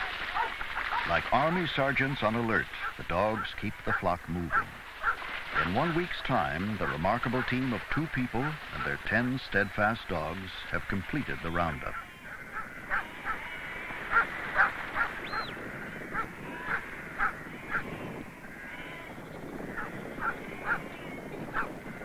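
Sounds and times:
dogs barking: 0:00.0 - 0:01.2, 0:02.8 - 0:05.8, 0:06.8 - 0:07.5, 0:11.9 - 0:17.9, 0:19.7 - 0:20.9, 0:21.5 - 0:21.8.

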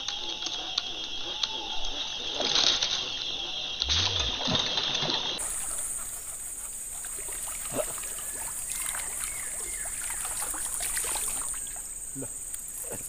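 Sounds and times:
high-pitched insect drone: 0:00.0 - 0:13.0
lure splashing and gurgling: 0:02.4 - 0:06.2, 0:07.0 - 0:11.9.

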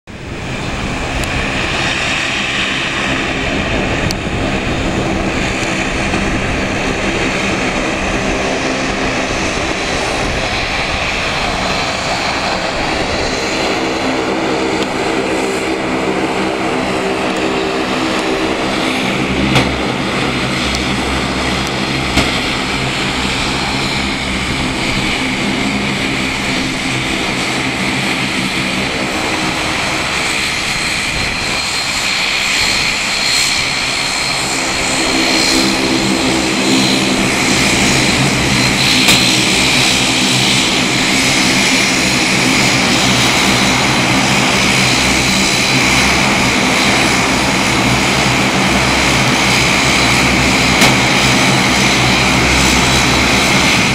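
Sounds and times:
turboprop engines droning: 0:00.1 - 0:53.9.

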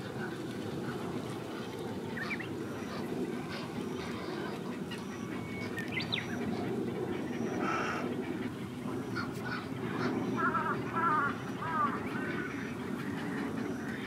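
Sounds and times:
din of heron colony: 0:00.0 - 0:14.0
wavering bird calls: 0:01.6 - 0:14.0
sharp bird calls and chirps: 0:04.9 - 0:06.6.

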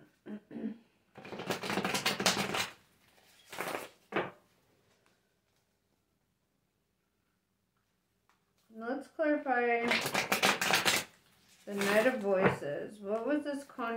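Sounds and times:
cards being shuffled: 0:01.2 - 0:04.3, 0:09.8 - 0:12.4.

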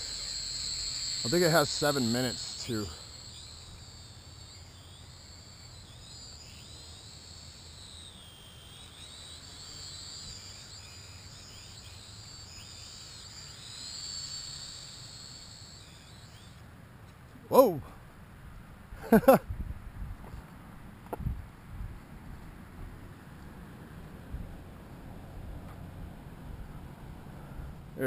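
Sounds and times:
drone propellers whining: 0:00.0 - 0:16.6.

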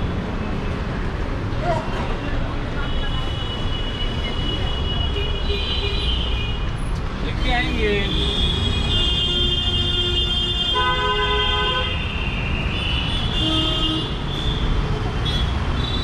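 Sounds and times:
traffic rumble: 0:00.0 - 0:16.0
vehicle horns honking: 0:08.0 - 0:16.0.

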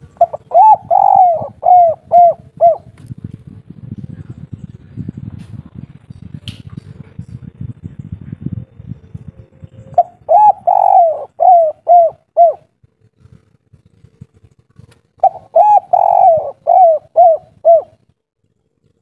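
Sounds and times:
dove cooing: 0:00.0 - 0:03.0, 0:08.1 - 0:14.4, 0:15.2 - 0:18.1.

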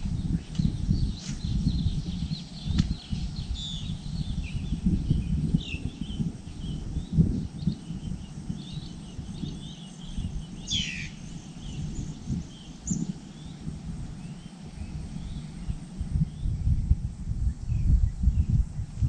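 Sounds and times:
small birds chirping: 0:00.0 - 0:16.8
bird call sweeping downward: 0:09.5 - 0:11.8.

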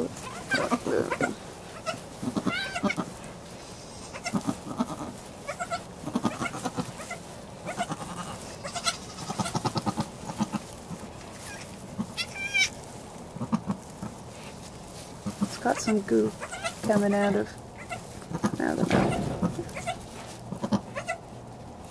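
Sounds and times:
goat making soft low calls: 0:00.0 - 0:03.2, 0:04.0 - 0:10.6
goat high-pitched cry: 0:00.2 - 0:03.2, 0:04.0 - 0:10.6, 0:11.4 - 0:12.8, 0:16.4 - 0:16.8, 0:17.8 - 0:21.3.

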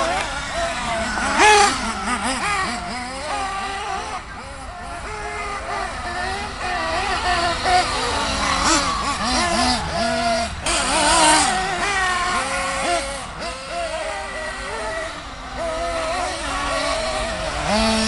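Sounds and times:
small engines revving whines: 0:00.0 - 0:18.0.

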